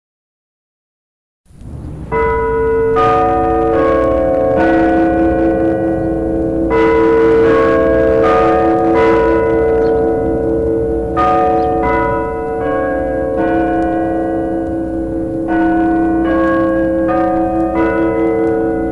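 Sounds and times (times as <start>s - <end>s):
clock tower bells playing chime: 2.1s - 18.9s.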